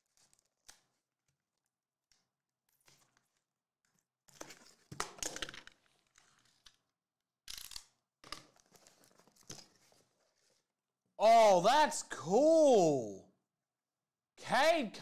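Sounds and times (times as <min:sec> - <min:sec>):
cardboard packaging rustling: 0:08.4 - 0:10.7.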